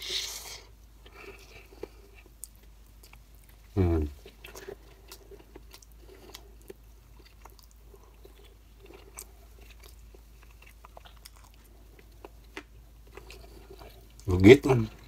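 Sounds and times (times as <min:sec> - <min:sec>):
person chewing food: 0:00.0 - 0:14.3.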